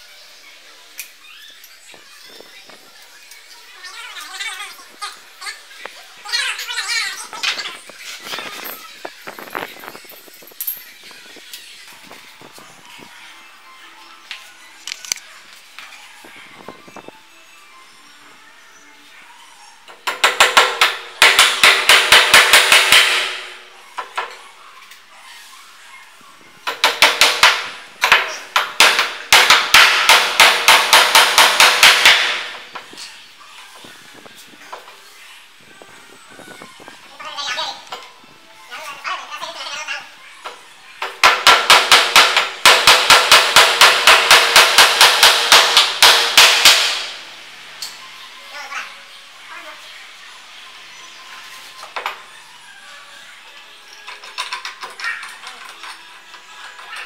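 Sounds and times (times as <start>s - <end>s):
hammer hitting a nail into wood: 20.1s - 23.5s, 26.7s - 32.6s, 41.2s - 47.1s.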